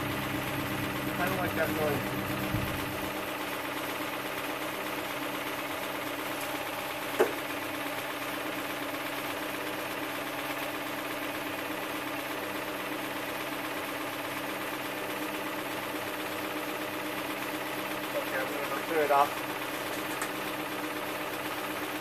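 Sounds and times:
engine idling with rhythmic knock: 0.0 - 22.0.

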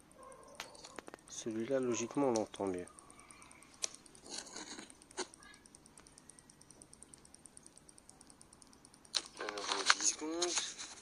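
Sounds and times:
high-pitched parking sensor ticking: 1.5 - 4.3, 4.9 - 9.2.

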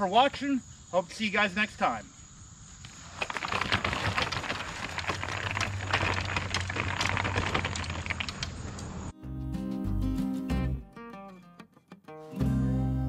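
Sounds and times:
wagon cart rattling over dirt: 3.0 - 8.9.

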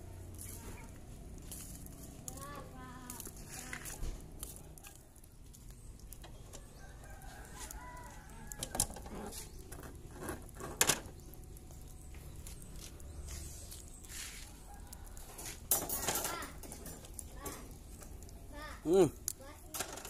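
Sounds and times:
metal grill grate clanking: 8.5 - 11.2, 15.2 - 18.2.

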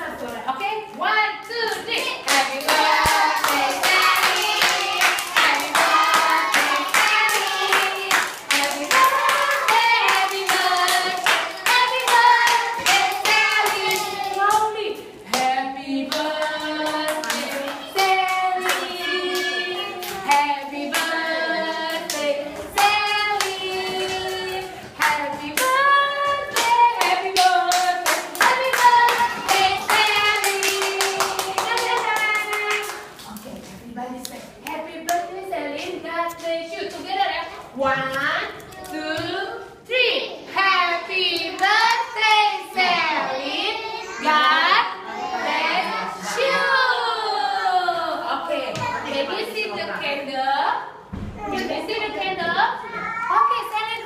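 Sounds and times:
group singing: 2.1 - 33.0, 40.6 - 48.0.

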